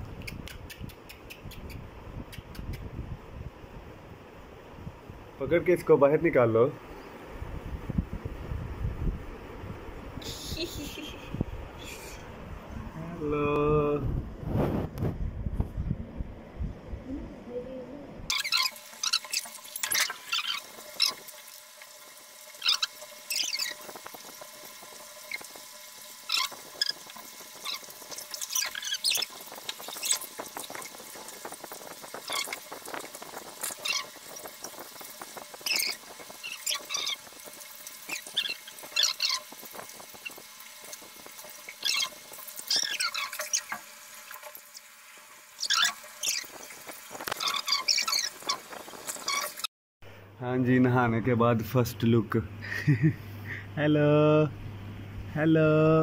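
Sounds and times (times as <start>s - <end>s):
water pouring and splashing in tub: 18.3s - 49.7s.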